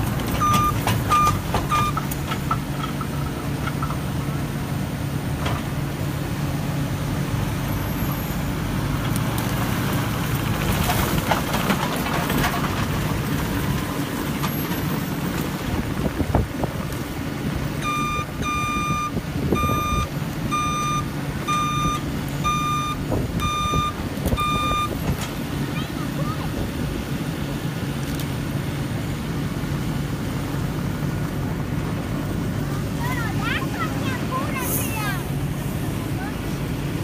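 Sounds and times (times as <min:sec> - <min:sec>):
diesel engine running: 0:00.0 - 0:37.0
backup alarm beeping: 0:00.4 - 0:02.0, 0:17.8 - 0:25.0.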